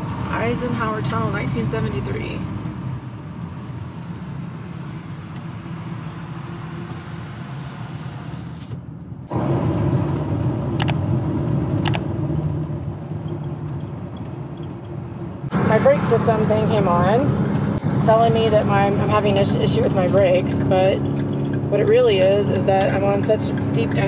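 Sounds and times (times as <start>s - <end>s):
van engine and road noise: 0.0s - 24.0s
sharp clicks: 10.8s - 11.0s.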